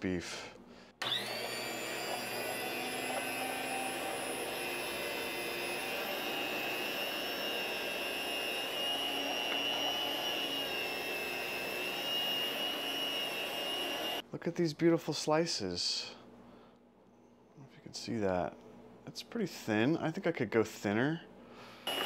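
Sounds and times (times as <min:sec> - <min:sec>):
electric meat slicer whining: 0:01.0 - 0:14.2.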